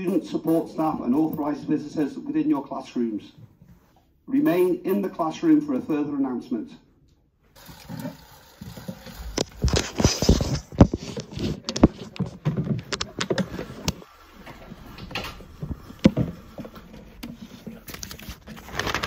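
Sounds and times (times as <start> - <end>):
phone handling rustling and clicks: 9.4 - 14.0.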